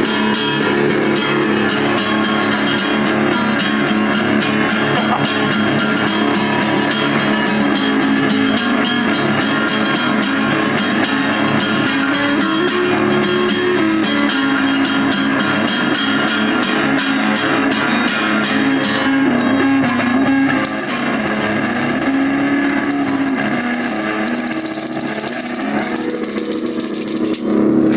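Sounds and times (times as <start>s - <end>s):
acoustic guitar strummed fast: 0.0s - 27.9s
tambourine jingling: 20.5s - 27.6s.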